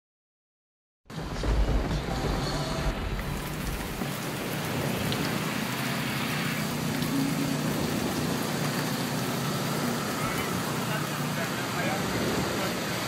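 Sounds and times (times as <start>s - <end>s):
low rumble: 1.1s - 5.2s
heavy rain on a car: 1.1s - 13.0s
tyres hissing through water: 2.1s - 13.0s.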